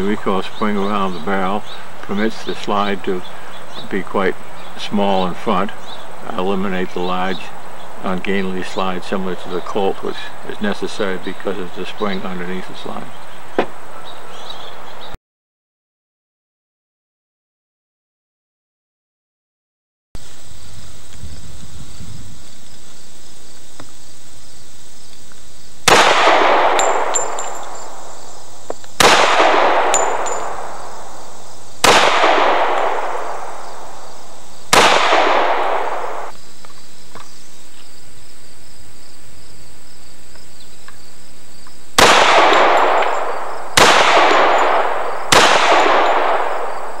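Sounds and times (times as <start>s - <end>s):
pistol shots with echo: 25.8s - 36.3s, 42.0s - 47.0s.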